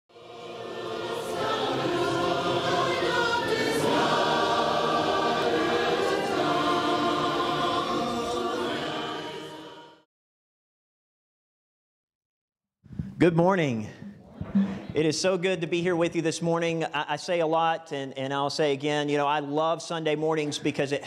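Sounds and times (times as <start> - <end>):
intro music with choral singing: 0.1 - 10.1.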